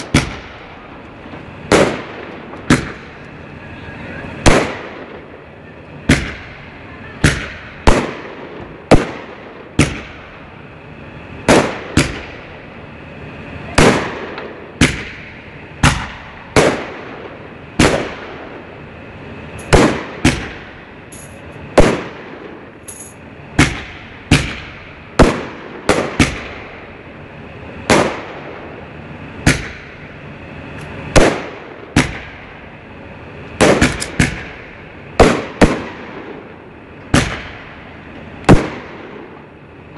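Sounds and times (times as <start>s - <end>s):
firework bangs echoing: 0.0s - 3.2s, 4.4s - 5.4s, 6.0s - 6.6s, 7.2s - 10.4s, 11.4s - 12.6s, 13.8s - 18.7s, 19.6s - 20.8s, 21.4s - 22.8s, 23.6s - 26.8s, 27.8s - 28.7s, 29.4s - 30.1s, 31.1s - 32.6s, 33.6s - 37.9s, 38.5s - 39.5s.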